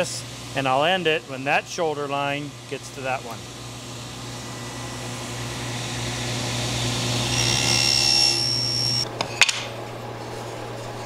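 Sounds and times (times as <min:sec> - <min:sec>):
table saw cutting wood: 0:03.1 - 0:09.3.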